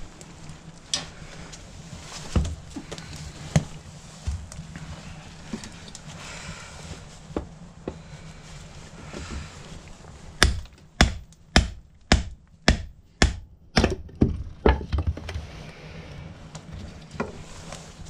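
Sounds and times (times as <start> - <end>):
hatchet chopping wood: 10.4 - 14.3.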